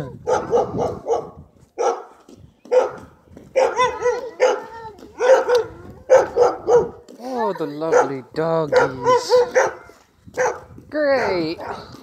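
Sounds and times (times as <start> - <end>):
dog barking loudly: 0.2 - 2.1, 2.7 - 7.0, 7.6 - 12.0.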